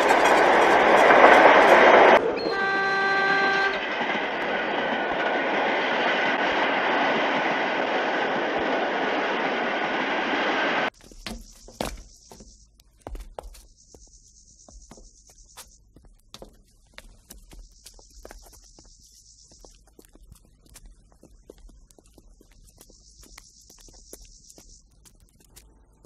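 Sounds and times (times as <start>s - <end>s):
electric train rumbling past: 0.0s - 11.0s
train horn: 1.6s - 4.5s.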